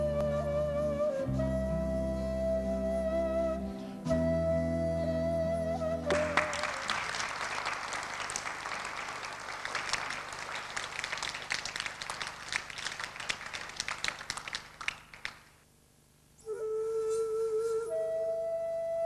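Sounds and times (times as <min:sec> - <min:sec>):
held flute note: 0:00.0 - 0:06.9, 0:16.4 - 0:19.0
audience applauding: 0:06.1 - 0:15.6.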